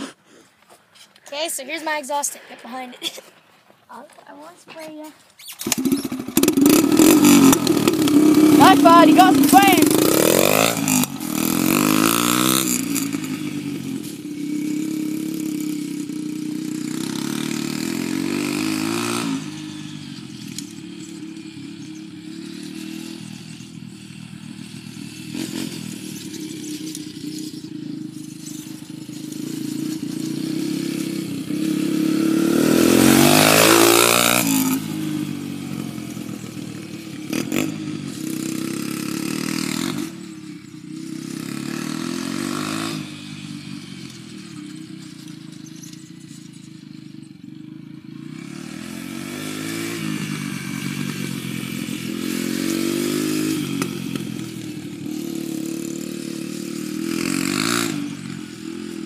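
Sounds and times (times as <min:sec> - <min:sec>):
dirt bike engine revving: 0:05.4 - 0:46.9, 0:47.9 - 0:59.0.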